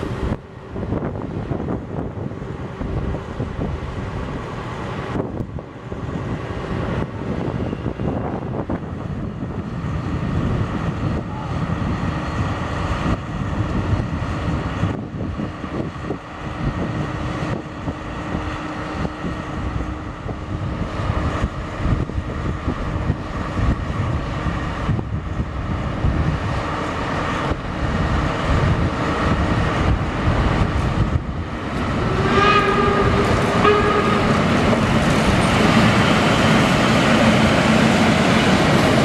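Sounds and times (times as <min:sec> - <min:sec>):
diesel locomotive rumble: 0:00.0 - 0:39.0
train horn: 0:32.0 - 0:34.9.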